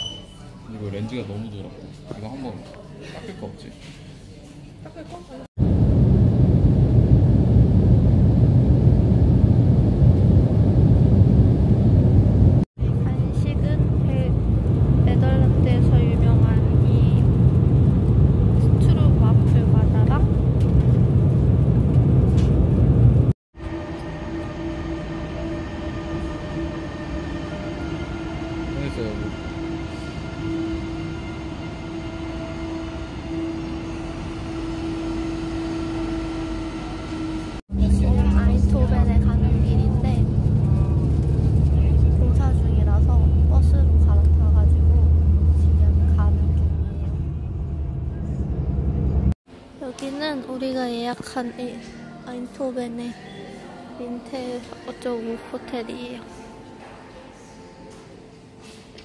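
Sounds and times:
jet airliner cabin rumble: 5.6s - 49.4s.

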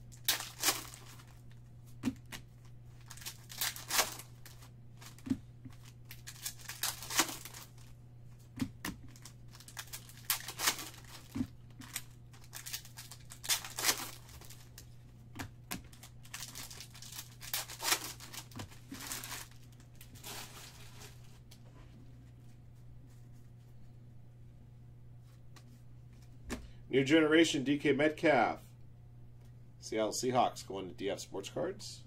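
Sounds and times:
steady low hum: 0.0s - 32.0s
foil wrappers tearing and crinkling: 0.1s - 1.4s, 3.0s - 7.9s, 9.0s - 14.9s, 15.9s - 21.4s.

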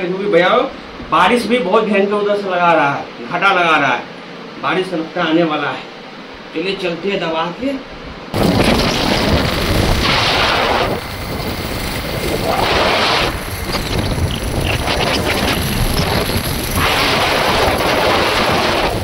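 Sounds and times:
wind rushing over microphone: 8.3s - 19.0s
engine and road rumble: 8.4s - 19.0s.

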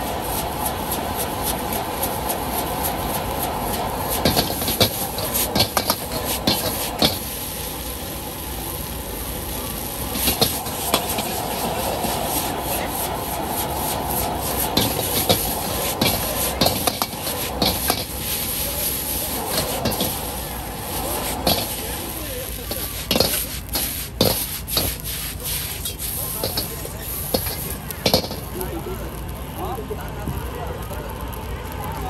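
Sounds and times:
stove burner flame roaring: 0.0s - 32.0s
metal spatula scraping a wok: 3.7s - 7.4s, 10.1s - 22.0s, 22.6s - 28.5s.

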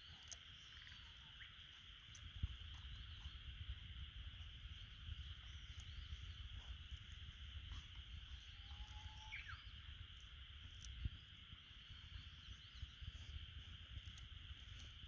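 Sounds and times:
insect chorus: 0.0s - 15.0s
bird chirps and whistle: 8.5s - 9.8s.

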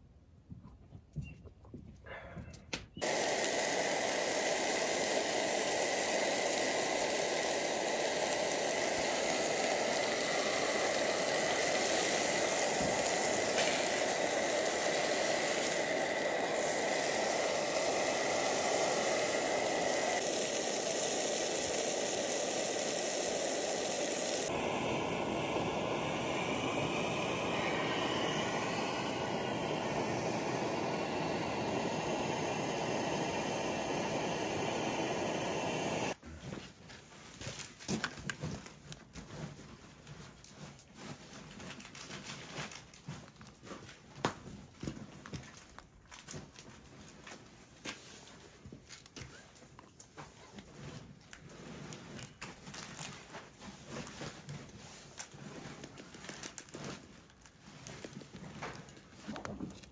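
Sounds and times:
steaks sizzling in a pan: 3.0s - 36.2s.

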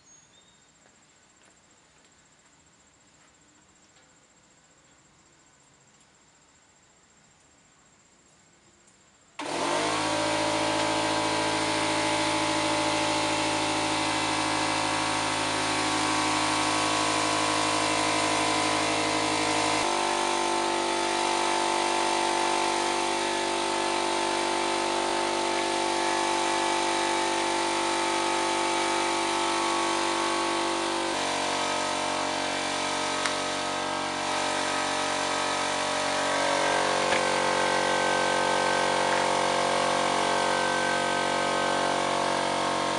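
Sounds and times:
electric sander motor running: 9.4s - 42.9s.

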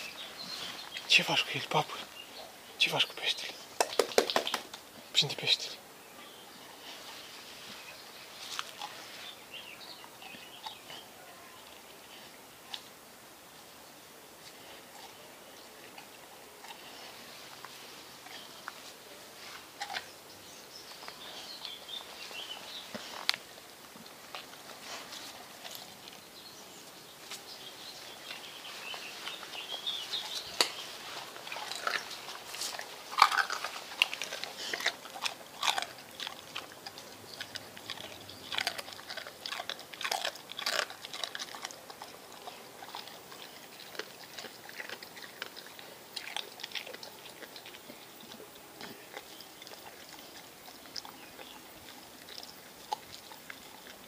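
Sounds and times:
dog chewing and crunching: 6.8s - 11.9s, 14.4s - 54.0s.

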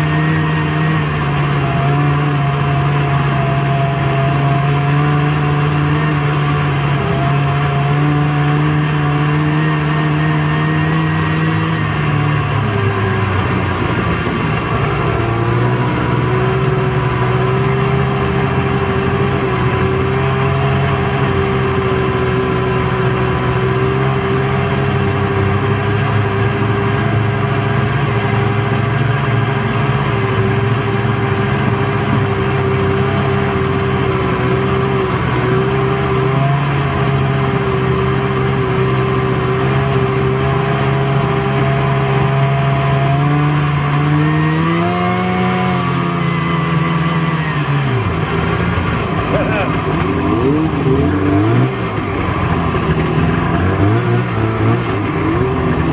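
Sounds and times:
snowmobile engine running: 0.0s - 55.9s.

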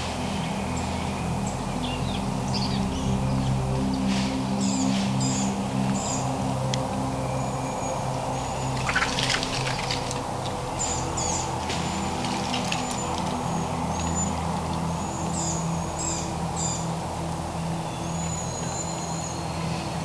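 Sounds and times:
soft background music: 0.0s - 20.0s
songbirds chirping: 0.0s - 20.0s
turkey flapping wings: 8.8s - 10.3s.

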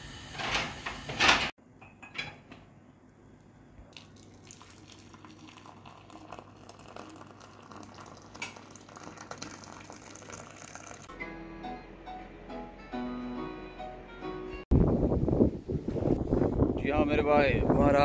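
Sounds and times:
tea bubbling in saucepan: 3.8s - 11.1s
tea pouring into cup: 3.9s - 11.1s.

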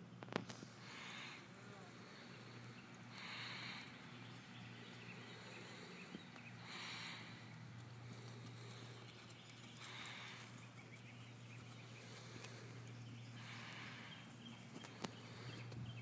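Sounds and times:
steady low hum: 0.0s - 16.0s
soft hoofbeats on grass: 3.9s - 16.0s.

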